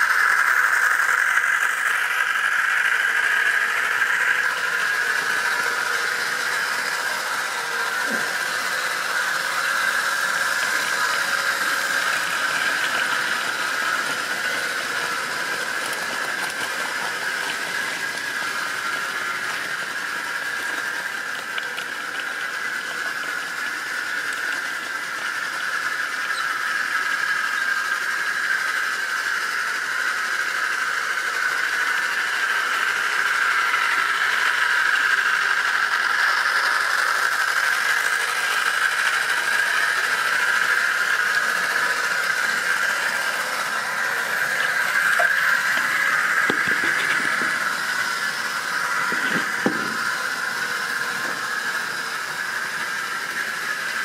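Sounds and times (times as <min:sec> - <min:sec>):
model train whine: 0:00.0 - 0:54.0
wheels rattling on rails: 0:00.0 - 0:54.0.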